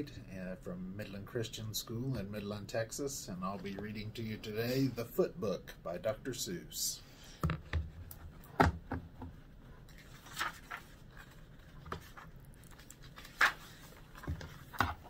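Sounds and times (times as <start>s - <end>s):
paper pages rustling: 9.8s - 15.0s.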